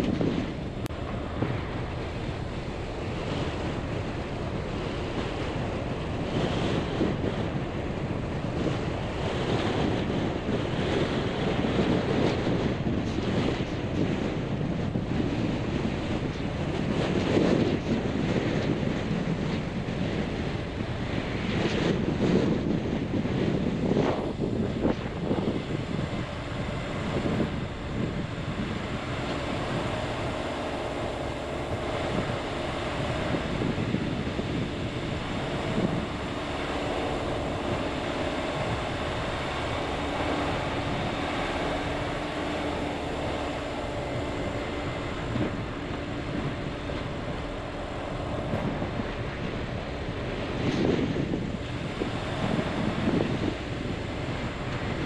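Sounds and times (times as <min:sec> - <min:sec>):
car engine hum: 0:00.0 - 0:55.0
tyres on dirt road: 0:00.0 - 0:55.0
wind buffeting: 0:00.0 - 0:55.0.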